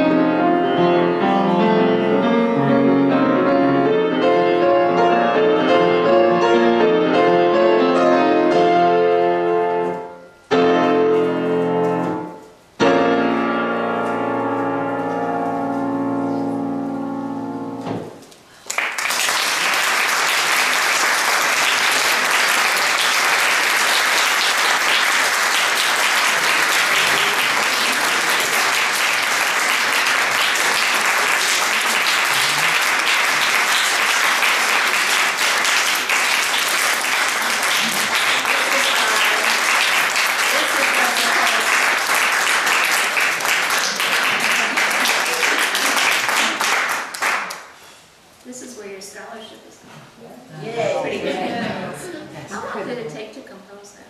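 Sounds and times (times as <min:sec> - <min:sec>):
grand piano chords: 0:00.0 - 0:18.3, 0:21.0 - 0:46.8
audience applause: 0:18.5 - 0:47.8.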